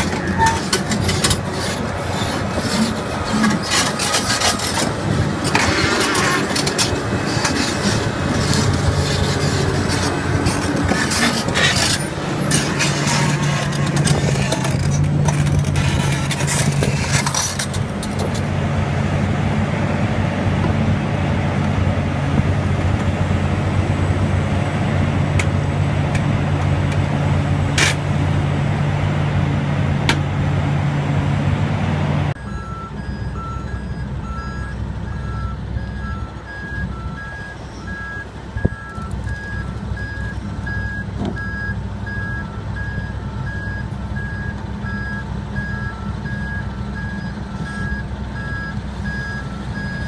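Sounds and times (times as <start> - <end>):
steel tracks clanking: 0.0 - 18.6
excavator engine droning: 0.0 - 50.0.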